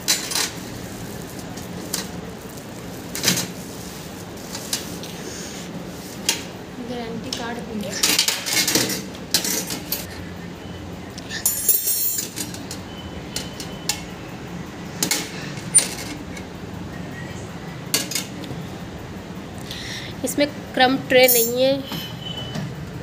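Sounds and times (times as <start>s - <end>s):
metal skewers clinking on tray: 21.2s - 21.8s.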